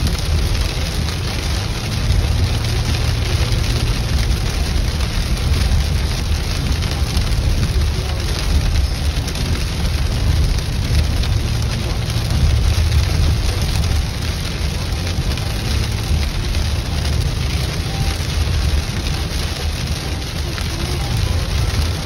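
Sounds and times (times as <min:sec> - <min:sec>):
heavy rain on car: 0:00.0 - 0:22.0
tyres rumbling on wet road: 0:00.0 - 0:22.0.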